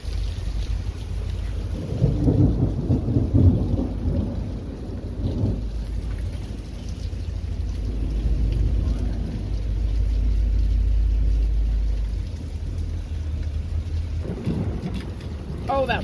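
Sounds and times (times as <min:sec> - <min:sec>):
heavy rain: 0:00.0 - 0:16.0
rolling thunder: 0:01.4 - 0:12.0, 0:13.7 - 0:16.0.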